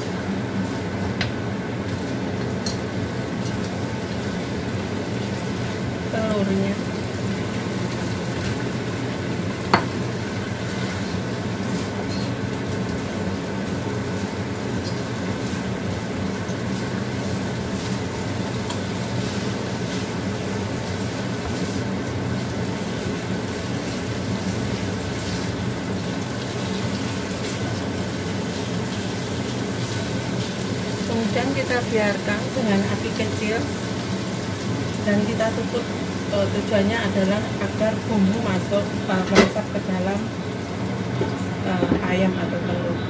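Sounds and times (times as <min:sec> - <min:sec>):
food sizzling in a wok: 0:00.0 - 0:42.7.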